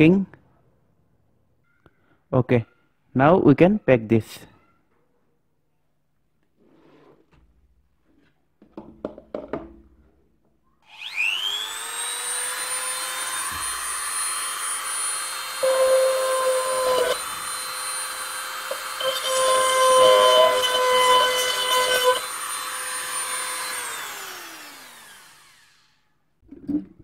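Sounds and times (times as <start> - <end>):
rotary drill boring plastic: 10.9 - 26.0.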